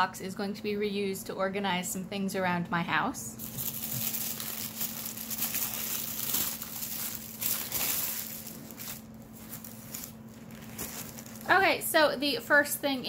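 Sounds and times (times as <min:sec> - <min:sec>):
packaging rustling and crinkling: 0:03.4 - 0:11.8.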